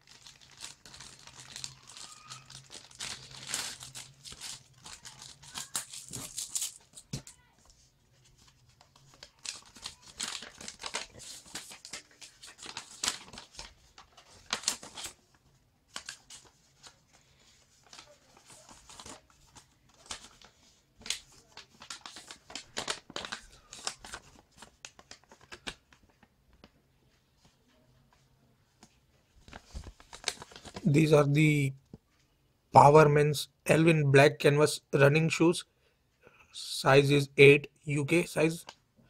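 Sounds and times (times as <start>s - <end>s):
paper crinkling: 0.0s - 31.1s.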